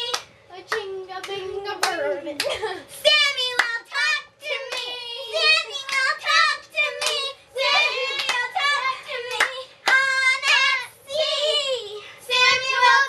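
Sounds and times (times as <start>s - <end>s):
girls singing: 3.0s - 13.0s
sharp handclaps: 9.3s - 10.0s.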